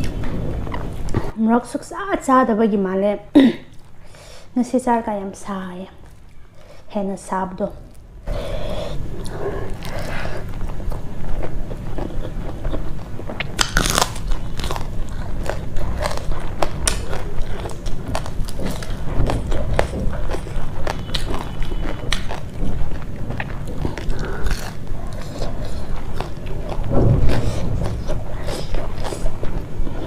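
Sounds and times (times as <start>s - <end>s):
chewing crunchy food: 7.6s - 30.0s.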